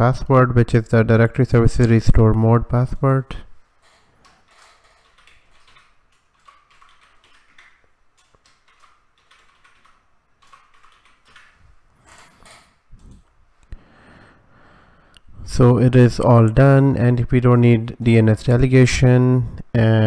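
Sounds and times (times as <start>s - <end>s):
faint keyboard typing: 3.8s - 13.3s.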